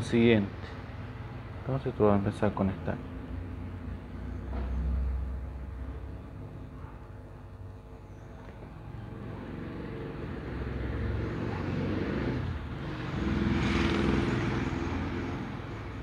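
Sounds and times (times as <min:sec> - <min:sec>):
vehicle engine rumble passing: 0:08.9 - 0:16.0.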